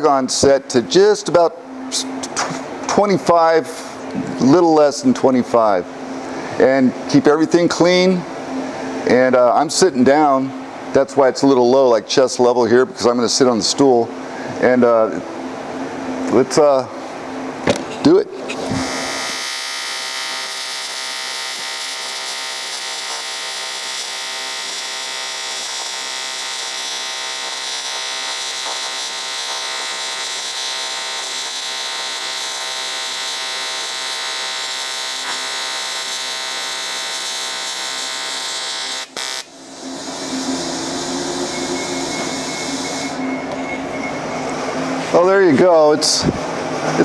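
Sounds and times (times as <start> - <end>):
welding arc buzzing: 17.3 - 43.6.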